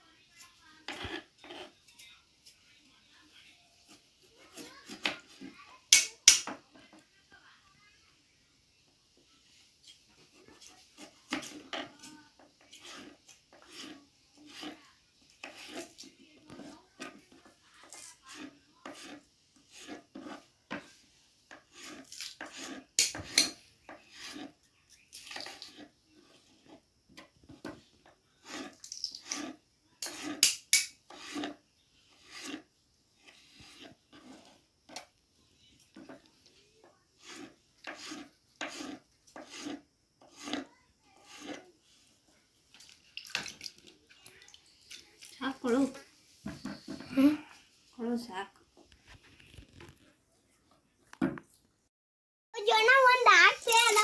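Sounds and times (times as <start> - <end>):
knife slicing potato on board: 0.9 - 1.7, 11.0 - 14.8, 18.2 - 20.9, 21.5 - 24.5, 28.4 - 31.6, 37.2 - 41.6
knife slicing potato: 28.4 - 32.6, 37.2 - 41.6.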